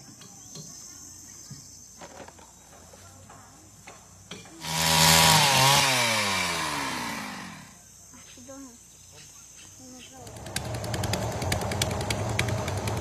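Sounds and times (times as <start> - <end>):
small engine starting and winding down: 4.6 - 7.8, 10.2 - 13.0.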